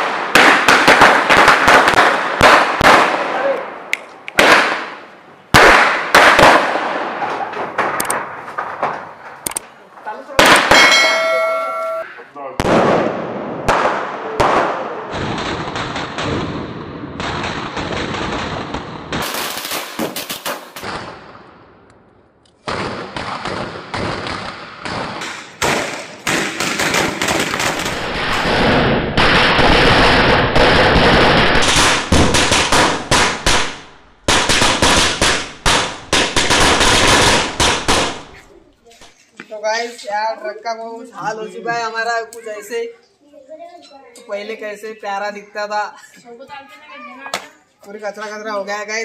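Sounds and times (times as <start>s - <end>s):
firecrackers crackling: 0.0s - 12.0s, 12.6s - 21.6s, 22.6s - 39.4s.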